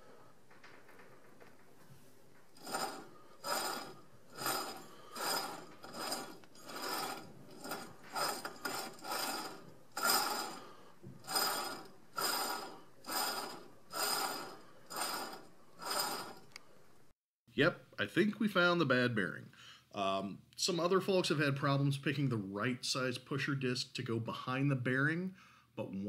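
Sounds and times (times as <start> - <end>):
wheel bearing grinding: 2.4 - 16.6.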